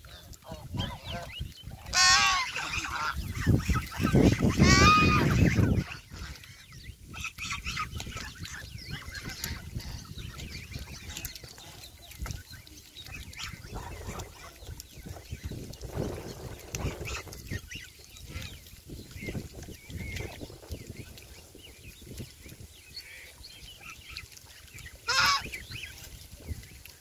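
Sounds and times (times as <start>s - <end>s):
geese honking: 0.0s - 12.0s, 25.0s - 25.7s
birds dabbling in shallow water: 0.0s - 27.0s.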